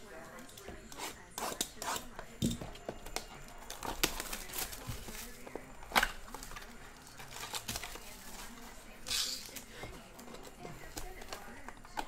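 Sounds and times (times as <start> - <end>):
plastic shrink-wrap tearing: 3.6 - 9.7.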